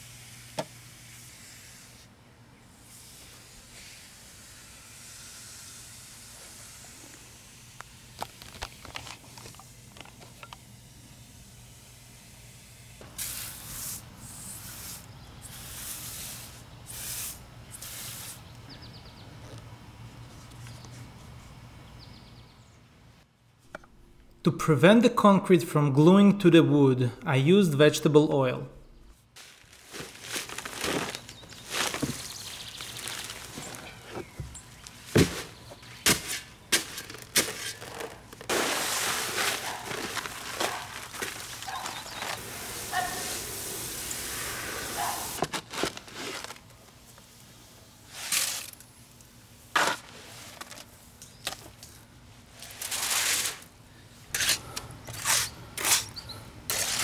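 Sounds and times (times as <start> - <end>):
garden hose spraying bursts: 0.0 - 2.1, 2.7 - 18.5, 34.8 - 46.6
shovel chopping into bag: 35.1 - 42.4
dry mix pouring into tub: 37.8 - 44.9.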